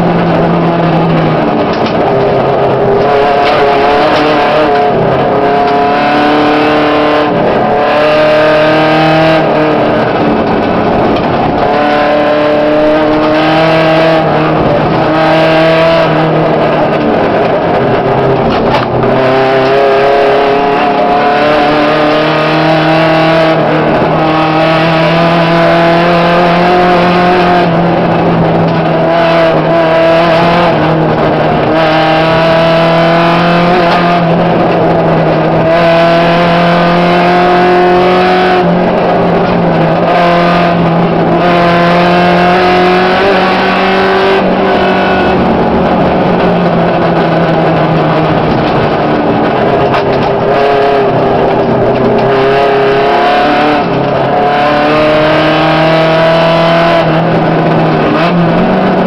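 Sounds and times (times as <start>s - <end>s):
rally car engine revving: 0.0s - 59.0s.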